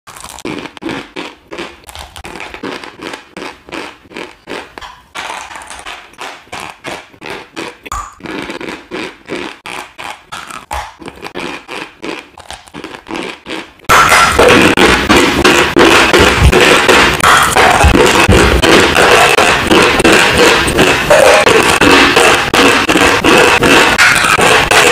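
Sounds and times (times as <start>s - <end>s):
chalk being chewed: 0.1s - 14.6s.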